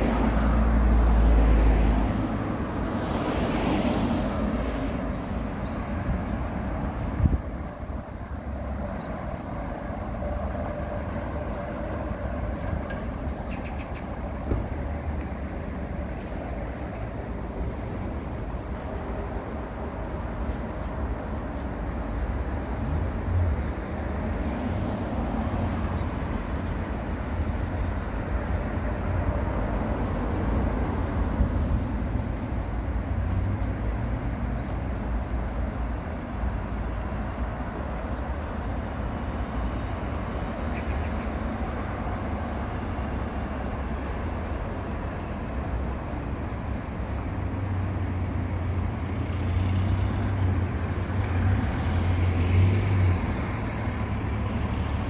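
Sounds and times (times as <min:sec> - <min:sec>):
road traffic rumble: 0:00.0 - 0:55.0.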